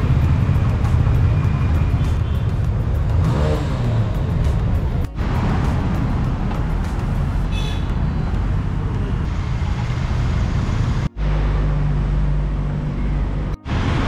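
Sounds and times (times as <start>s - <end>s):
motorcycle engine running: 0.0s - 9.3s
street traffic: 0.0s - 14.0s.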